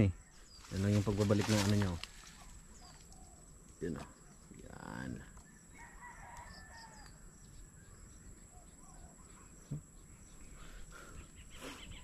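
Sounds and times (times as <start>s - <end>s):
distant bird calls: 0.0s - 12.0s
rooster crowing: 5.7s - 7.2s.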